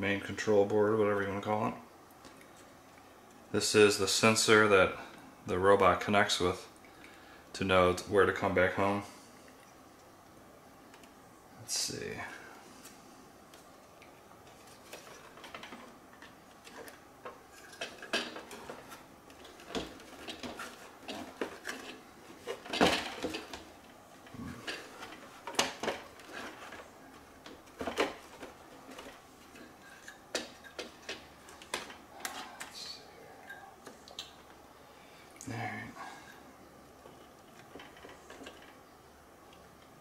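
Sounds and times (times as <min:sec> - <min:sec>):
plastic parts clicking and rattling: 0:14.4 - 0:32.8, 0:37.0 - 0:38.8.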